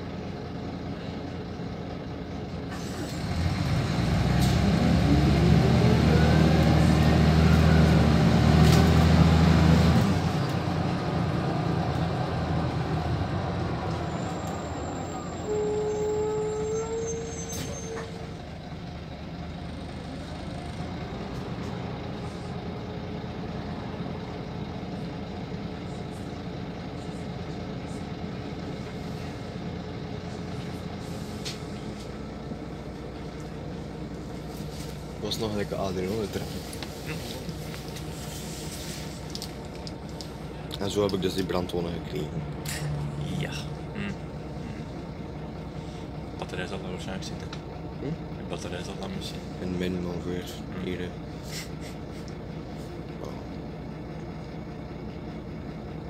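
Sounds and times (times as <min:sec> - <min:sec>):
bus engine whining: 0:00.0 - 0:56.0
brake squeal: 0:02.7 - 0:03.5, 0:13.9 - 0:18.4, 0:34.4 - 0:39.4.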